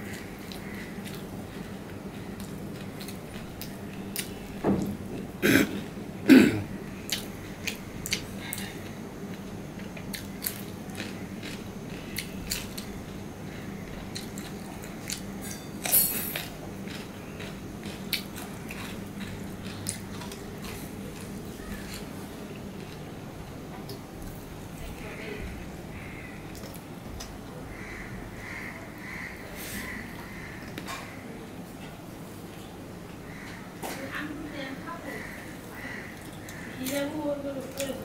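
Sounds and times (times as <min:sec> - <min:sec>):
man chewing food: 0:00.0 - 0:24.6, 0:25.8 - 0:29.2, 0:35.7 - 0:36.8
throaty sounds: 0:05.4 - 0:06.8.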